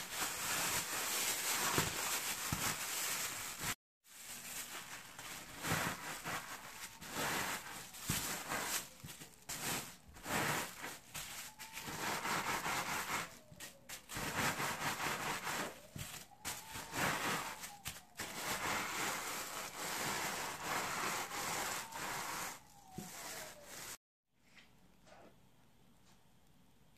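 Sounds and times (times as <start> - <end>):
plastic bag crinkling and crunching: 0.0 - 12.4.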